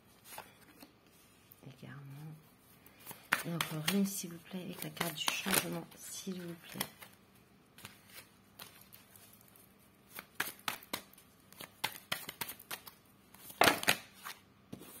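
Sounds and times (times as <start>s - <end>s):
cards being shuffled: 2.9s - 7.2s, 7.8s - 15.0s.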